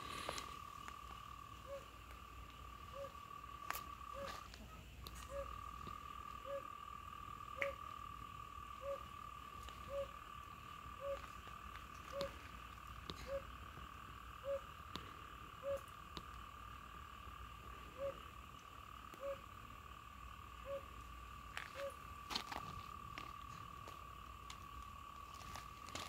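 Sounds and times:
frogs chorus: 0.0 - 26.0
short lower frog call: 1.6 - 2.0, 2.8 - 5.6, 6.4 - 6.8, 7.5 - 7.9, 8.8 - 10.2, 10.9 - 11.4, 12.0 - 12.4, 13.1 - 13.6, 14.4 - 14.8, 15.5 - 16.0, 17.8 - 18.4, 19.1 - 19.5, 20.6 - 21.0, 21.6 - 22.0.

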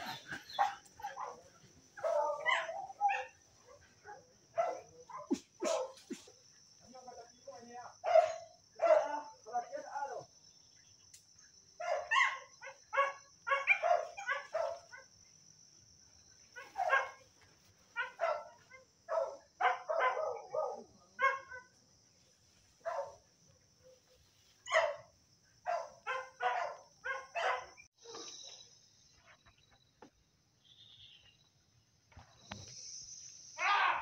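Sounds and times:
dogs barking and yelping: 0.0 - 6.4, 8.0 - 9.2, 11.8 - 15.2, 16.5 - 21.8, 23.8 - 28.6
high-pitched insect buzz: 30.6 - 34.0.

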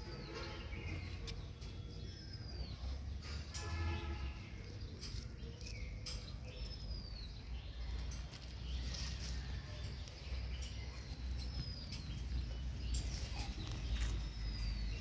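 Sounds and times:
high bird chirps: 0.0 - 15.0
rustling in dry leaves: 3.2 - 15.0.

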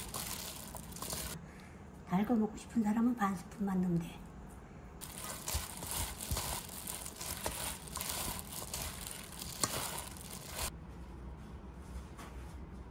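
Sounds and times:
plastic glove crinkling: 0.0 - 1.4, 5.0 - 10.7
wet squishing of vegetables: 0.0 - 1.4, 5.0 - 10.7.

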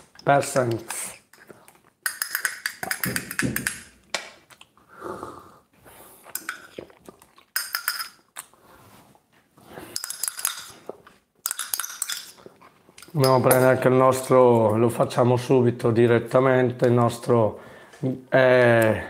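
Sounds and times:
teaspoon clinking in a cup: 7.6 - 8.2, 11.4 - 12.4.

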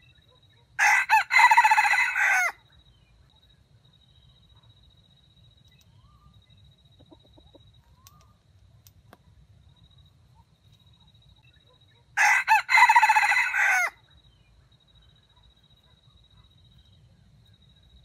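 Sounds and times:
rooster crowing: 0.8 - 2.6, 12.2 - 14.0
soft clucks: 6.9 - 8.3.

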